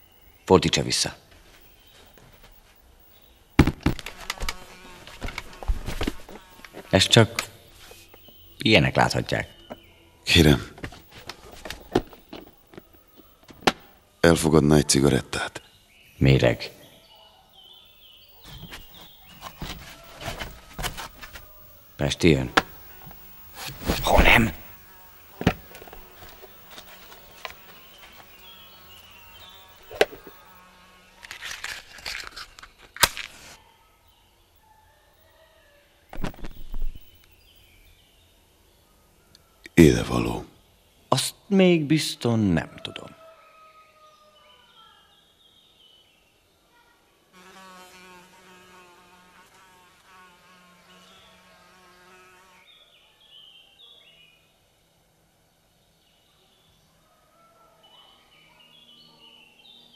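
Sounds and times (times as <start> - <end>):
fly buzzing: 1.6 - 8.6, 18.2 - 33.6, 47.3 - 52.8
match strike snap: 31.2 - 33.6.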